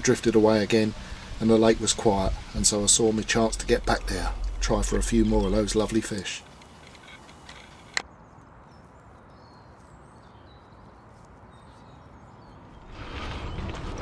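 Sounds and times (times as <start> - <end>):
barrow rolling on dirt track: 12.8 - 14.0.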